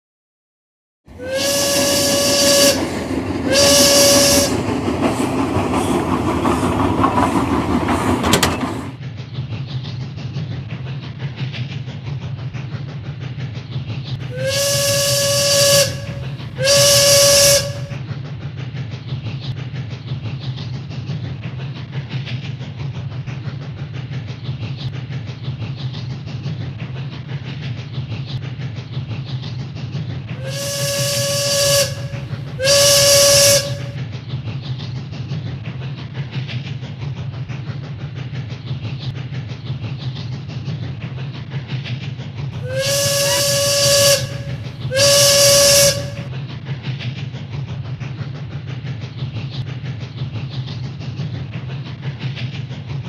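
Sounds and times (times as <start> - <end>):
train rumbling: 1.1 - 53.0
train whistle blasts: 1.2 - 4.7, 14.3 - 18.0, 30.4 - 34.0, 42.6 - 46.3.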